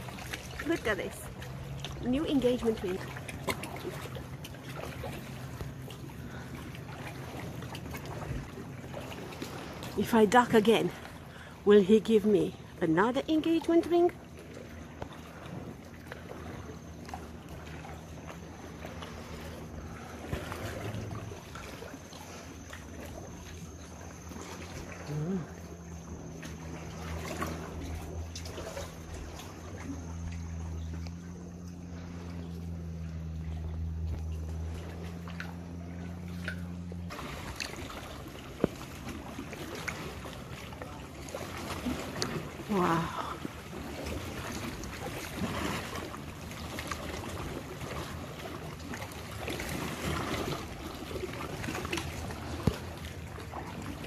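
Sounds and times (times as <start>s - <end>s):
small splashes and drips: 0.0s - 54.0s
steady low hum: 0.0s - 54.0s
water lapping and trickling: 0.0s - 54.0s
loud splashes: 34.6s - 54.0s.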